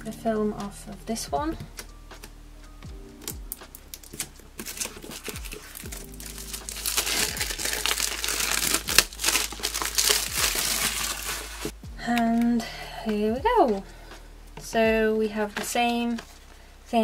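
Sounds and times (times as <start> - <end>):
plastic wrap crinkling: 3.2 - 12.5.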